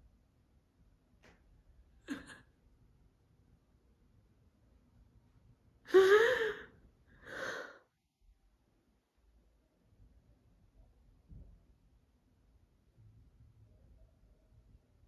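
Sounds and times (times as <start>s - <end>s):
woman sobbing: 2.1s - 2.4s, 5.9s - 6.7s
breathy intake of breath: 5.9s - 7.9s.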